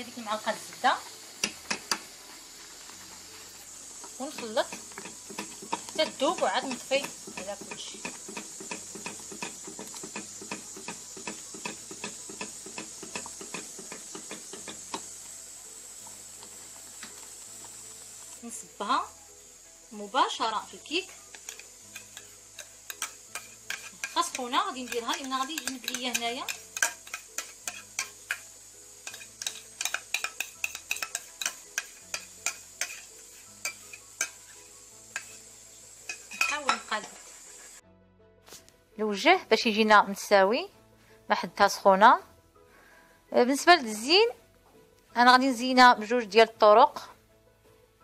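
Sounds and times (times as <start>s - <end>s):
steady hiss: 0.0s - 37.8s
wire whisk clicking against pan: 4.3s - 15.0s, 21.3s - 34.4s, 35.1s - 35.4s, 36.1s - 36.9s
spoon scraping and tapping a pot: 4.3s - 15.1s, 21.2s - 35.5s, 36.1s - 37.2s.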